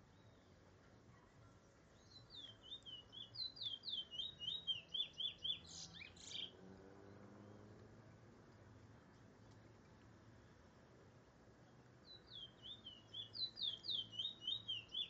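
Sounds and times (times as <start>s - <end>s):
finch singing whistled notes: 1.9s - 6.6s, 12.0s - 15.0s.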